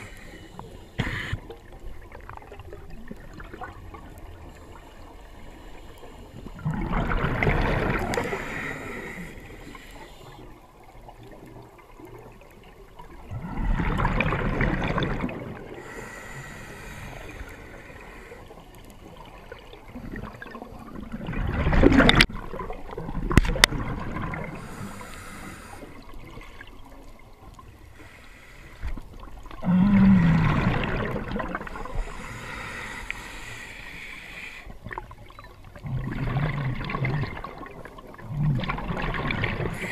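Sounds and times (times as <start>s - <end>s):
water gurgling and rushing: 6.4s - 9.9s, 11.0s - 18.3s, 19.0s - 27.9s, 29.2s - 32.8s, 34.8s - 39.9s.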